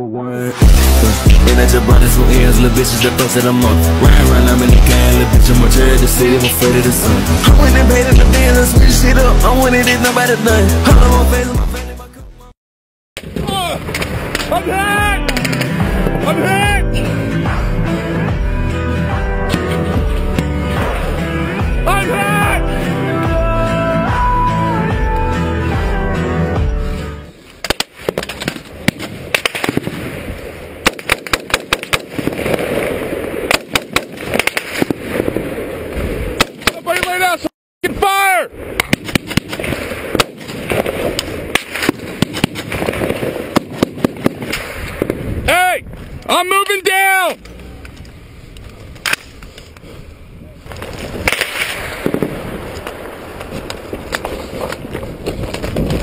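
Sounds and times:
sharp crack: 13.2 - 15.9, 27.5 - 37.4, 38.7 - 45.4, 46.2 - 49.9, 50.7 - 56.0
gunshots: 27.6 - 37.2, 38.7 - 45.4, 50.7 - 53.5.

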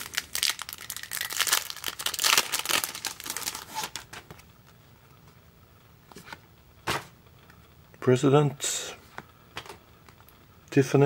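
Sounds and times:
plastic wrapper crinkling and tearing: 0.0 - 4.8.

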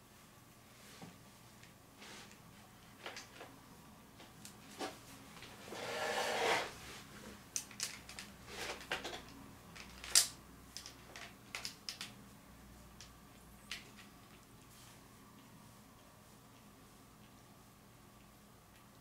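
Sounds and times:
soft rustle: 12.3 - 17.5.

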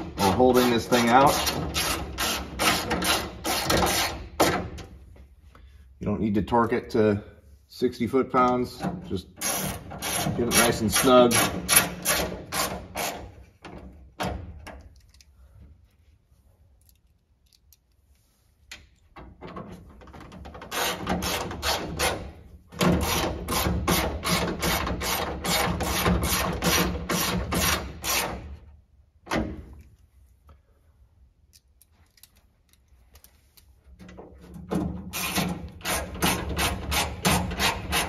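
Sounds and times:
hand ratchet clicking: 35.1 - 38.0.

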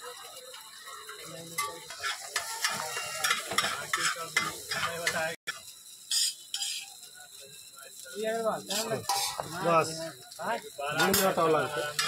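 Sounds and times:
eggs sizzling: 0.0 - 12.0
metal spatula scraping griddle: 1.0 - 5.4, 6.1 - 6.9, 8.7 - 9.6, 11.0 - 12.0.

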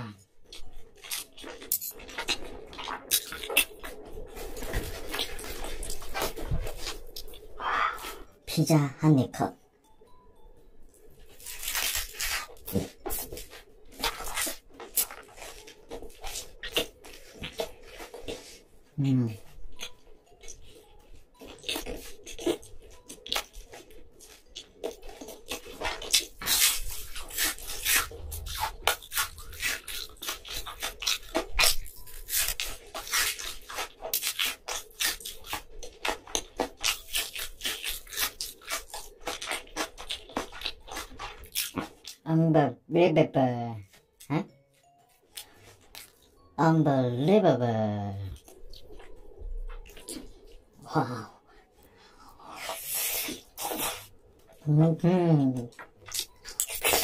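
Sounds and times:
chewing: 0.4 - 8.2, 19.3 - 42.2, 45.2 - 46.5, 48.3 - 54.6, 55.6 - 57.0.

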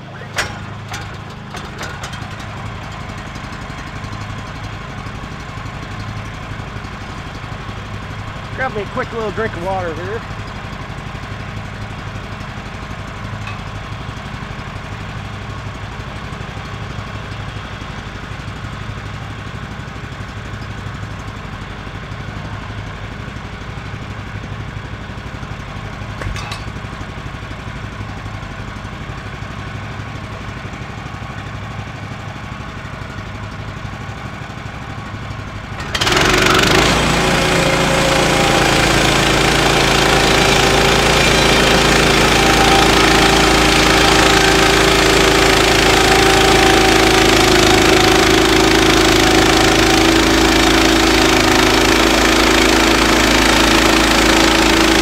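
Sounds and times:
sawmill engine running: 0.0 - 55.0
band blade sawing log: 35.9 - 55.0.

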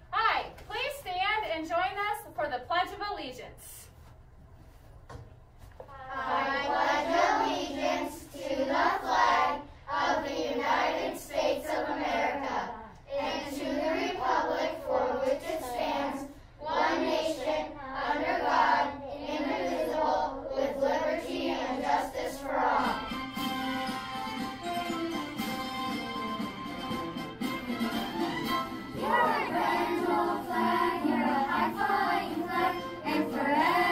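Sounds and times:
children singing in unison: 6.0 - 23.3, 28.9 - 33.9.

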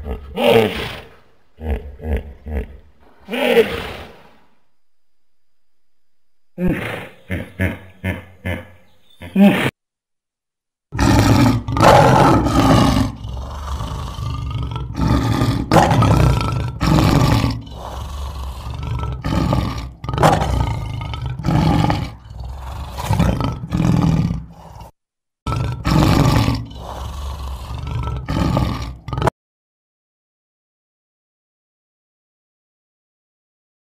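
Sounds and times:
lion grunting calls: 0.0 - 4.5, 6.6 - 9.7, 11.0 - 24.9, 25.5 - 29.3
lion roaring: 10.9 - 29.3.

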